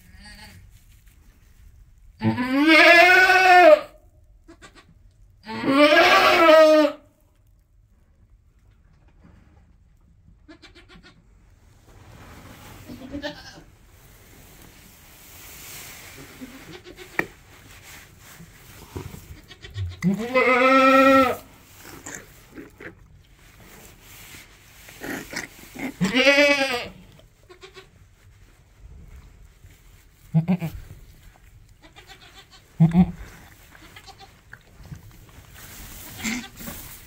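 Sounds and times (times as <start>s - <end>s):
goat bleating: 2.2s - 3.9s, 4.5s - 7.0s, 10.5s - 11.2s, 12.9s - 13.7s, 19.4s - 21.5s, 25.8s - 27.9s, 30.3s - 30.8s, 31.8s - 34.4s, 36.2s - 36.7s
soft movement noises: 11.3s - 37.0s.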